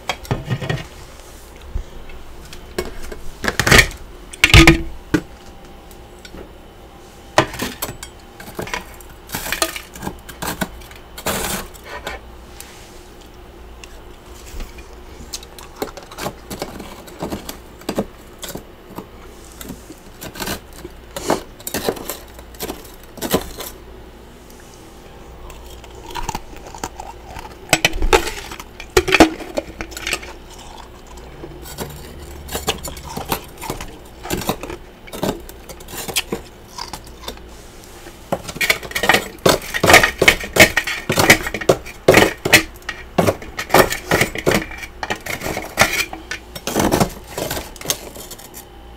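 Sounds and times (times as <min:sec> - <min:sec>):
frost crunching: 0:25.4 - 0:48.6.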